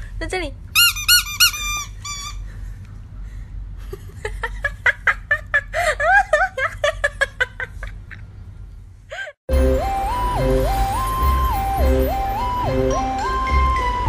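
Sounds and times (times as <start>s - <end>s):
squeaky toy squeaking: 0.8s - 2.5s.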